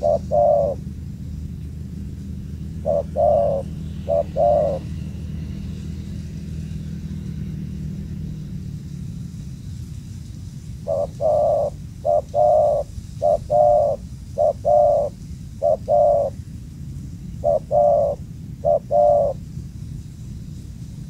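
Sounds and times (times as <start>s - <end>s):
dove cooing: 0.0s - 1.5s, 2.4s - 5.7s, 10.8s - 16.4s, 17.3s - 19.5s
steady low rumble: 0.0s - 21.0s.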